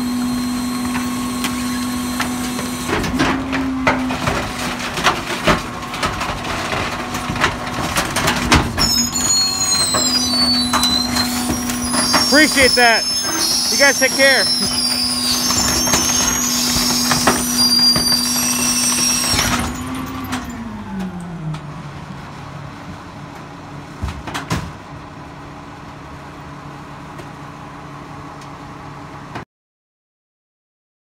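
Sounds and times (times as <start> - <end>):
garbage truck engine revving: 0.0 - 22.9
high hydraulic whine: 8.8 - 21.4.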